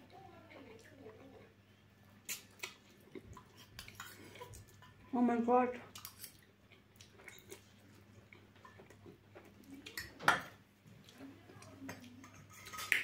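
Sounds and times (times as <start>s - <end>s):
chewing: 0.6s - 5.0s, 5.9s - 10.2s.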